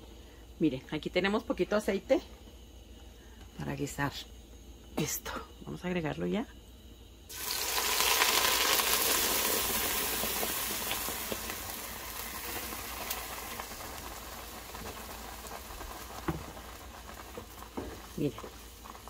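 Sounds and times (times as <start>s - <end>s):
sauce sizzling in oil: 7.3s - 19.0s
knock: 16.2s - 16.6s.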